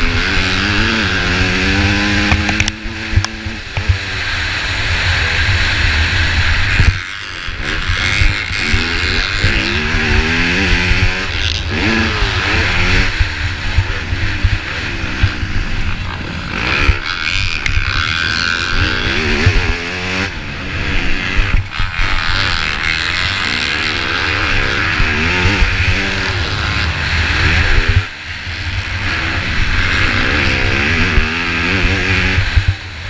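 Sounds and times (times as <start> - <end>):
dirt bike engine revving: 0.0 - 33.0
wind rumble: 0.0 - 33.0
knocks from rough track: 2.2 - 4.0.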